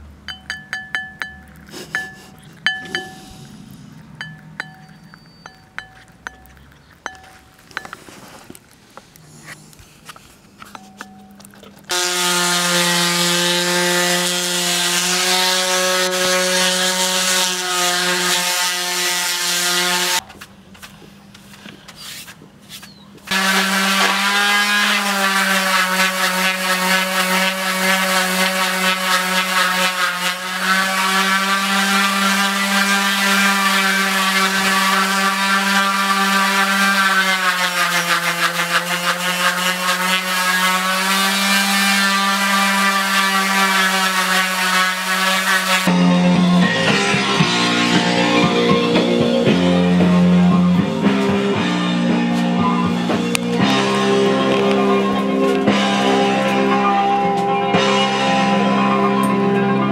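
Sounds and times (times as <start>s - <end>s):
power tool whining: 11.7s - 20.2s, 23.3s - 56.8s.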